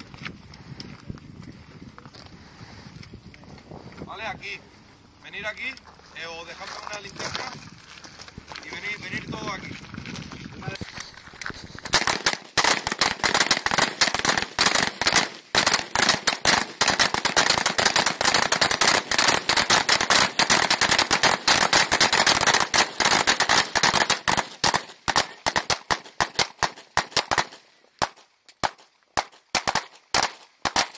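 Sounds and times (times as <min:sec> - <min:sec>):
rifle shots with echoes: 0:11.9 - 0:30.9.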